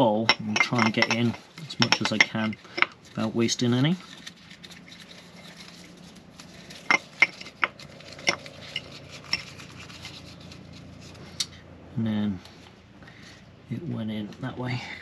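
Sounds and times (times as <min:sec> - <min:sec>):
gloved fingers rubbing: 0:04.0 - 0:11.5.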